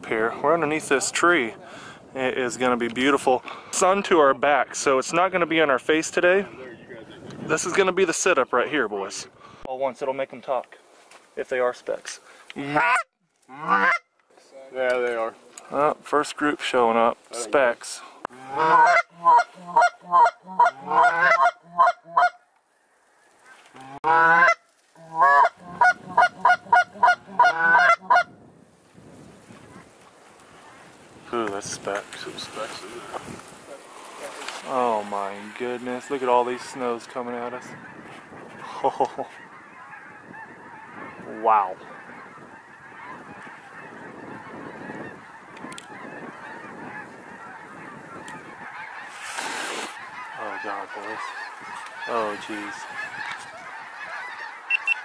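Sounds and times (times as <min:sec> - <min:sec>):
geese calling: 0:11.5 - 0:14.2, 0:16.8 - 0:28.4, 0:29.5 - 0:55.0.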